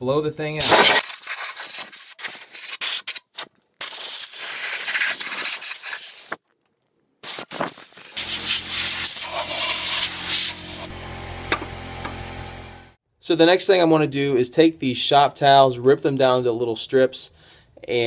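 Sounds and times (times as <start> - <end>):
compressed air hissing from nozzle: 7.2 - 10.9.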